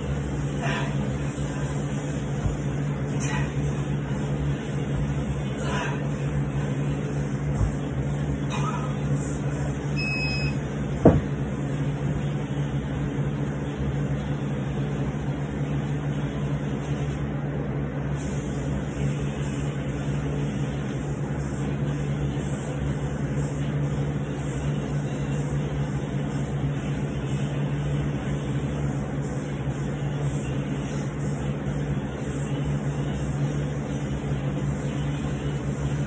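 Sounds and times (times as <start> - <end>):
steady low hum: 0.0 - 36.0
short high beep: 10.0 - 10.6
dumbbell thudding on floor: 11.0 - 11.3.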